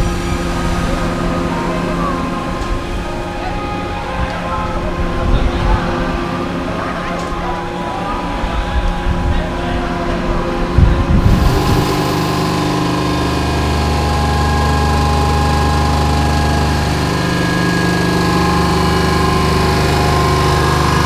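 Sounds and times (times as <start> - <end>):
ride wheel drive humming: 0.0 - 21.0.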